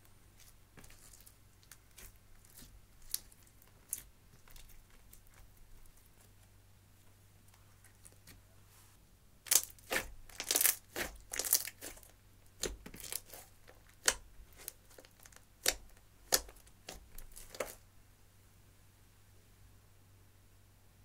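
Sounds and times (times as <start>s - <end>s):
slime crackling and popping: 0.4s - 6.3s, 9.5s - 17.8s.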